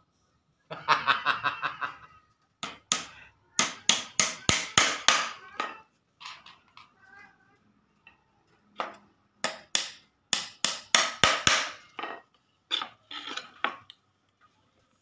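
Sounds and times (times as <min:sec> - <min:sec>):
man chuckling: 0:00.7 - 0:02.2.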